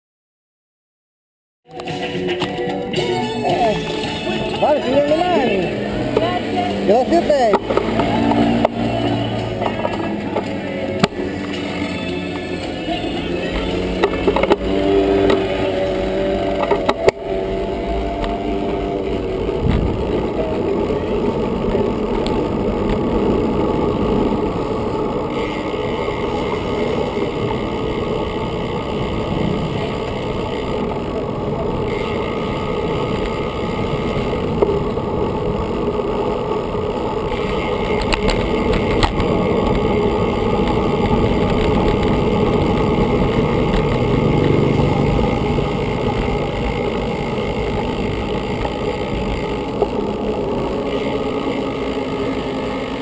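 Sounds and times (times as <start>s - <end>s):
bicycle road rumble: 1.6s - 53.0s
wind on microphone: 14.4s - 28.2s.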